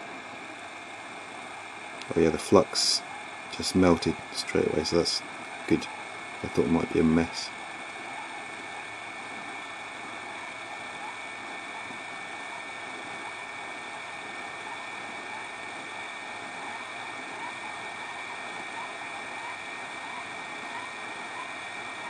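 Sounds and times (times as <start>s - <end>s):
hot air blower hissing and whining: 0.0s - 22.0s.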